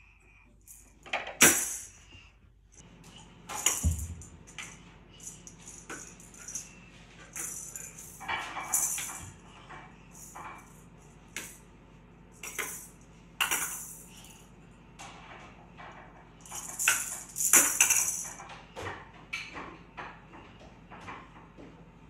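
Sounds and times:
toy jingling and rattling: 3.5 - 9.4, 10.1 - 10.8, 12.4 - 14.4, 16.4 - 18.4.

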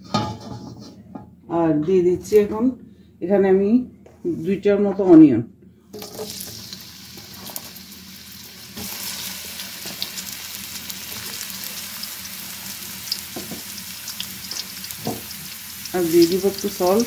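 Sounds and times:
onions sizzling in oil: 6.0 - 17.0.

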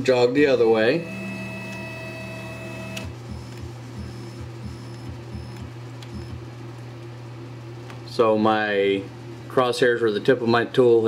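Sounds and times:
stepper motor whine: 0.5 - 6.4
motor click: 2.8 - 3.7.

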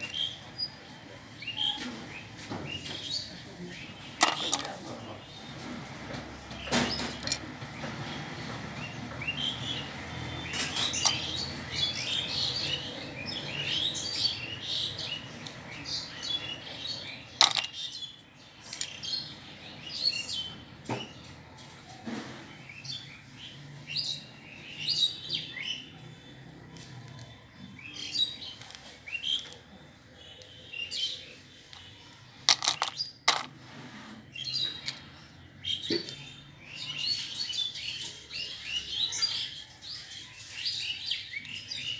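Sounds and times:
small birds chirping: 0.0 - 41.9
plastic toy pieces clicking: 4.2 - 4.7, 17.4 - 17.8, 32.4 - 33.5
plastic toys clattering: 4.2 - 5.2, 6.8 - 7.6, 10.6 - 11.4, 17.4 - 18.0, 18.6 - 19.0, 28.4 - 29.7, 31.6 - 33.6, 34.7 - 35.1
bird chirping: 8.8 - 21.2.

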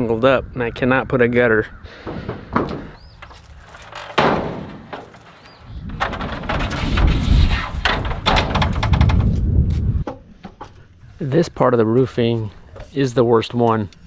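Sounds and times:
ladder knocking and rattling: 1.9 - 10.8.

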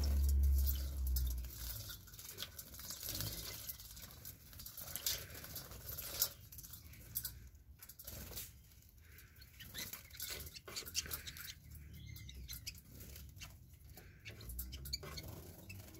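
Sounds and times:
birds splashing in water: 0.0 - 7.2.

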